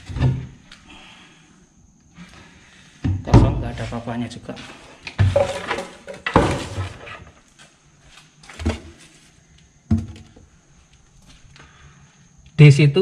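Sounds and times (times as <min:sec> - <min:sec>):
cabinet doors knocking shut: 0:03.0 - 0:03.6.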